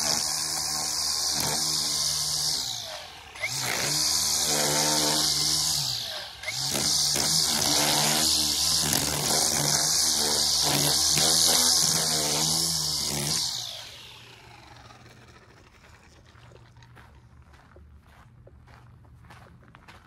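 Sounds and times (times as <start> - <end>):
string trimmer cutting grass: 0.0 - 17.2
footsteps on gravel: 15.8 - 20.0.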